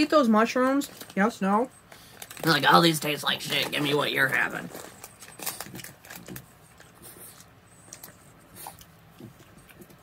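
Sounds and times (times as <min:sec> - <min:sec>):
plastic packet rustling: 0:02.0 - 0:06.9.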